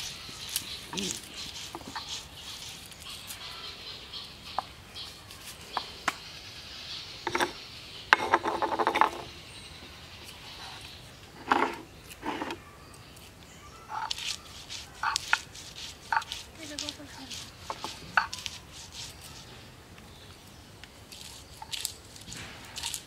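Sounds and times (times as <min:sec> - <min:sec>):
stone roller grinding: 0:00.0 - 0:03.5, 0:07.2 - 0:09.3, 0:11.3 - 0:12.6, 0:13.9 - 0:19.5, 0:21.1 - 0:23.0.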